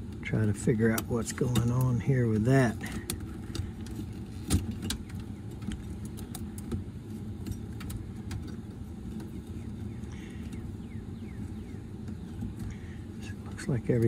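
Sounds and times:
steady low hum: 0:00.0 - 0:14.0
wires and wire nuts clicking: 0:00.7 - 0:06.8.

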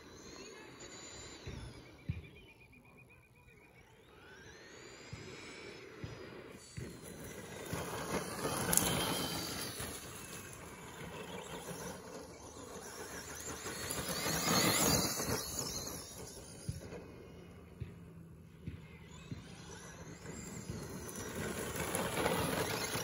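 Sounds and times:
rc car motor whining: 0:00.0 - 0:23.0
tyres on grass: 0:06.0 - 0:23.0.

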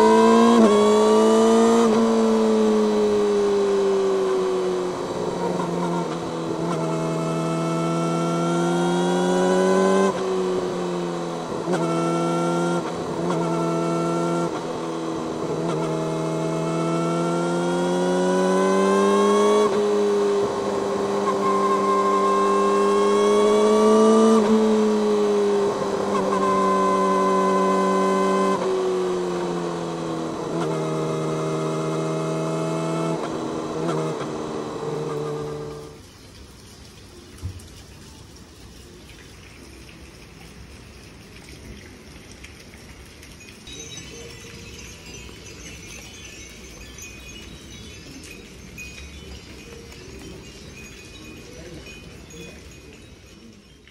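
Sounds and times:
motorcycle engine revving: 0:00.0 - 0:36.0.

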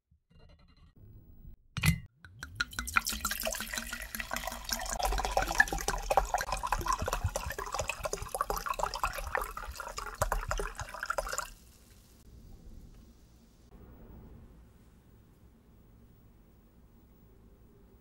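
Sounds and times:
wine pouring into a jug: 0:02.5 - 0:12.2.

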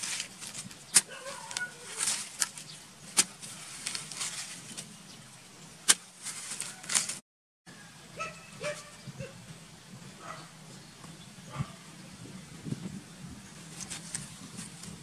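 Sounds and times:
metal blade striking dry soil: 0:00.0 - 0:04.9, 0:05.8 - 0:07.2
earth scraping and crumbling: 0:00.0 - 0:07.2.

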